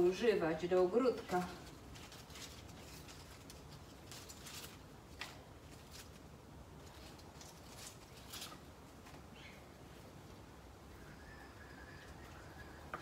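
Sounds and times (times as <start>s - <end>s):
dry leaves and soil rustling: 0.0s - 13.0s.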